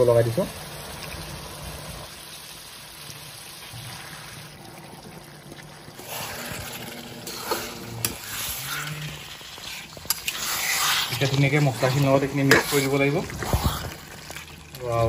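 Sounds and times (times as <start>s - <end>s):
gravy bubbling and sizzling: 0.0s - 15.0s.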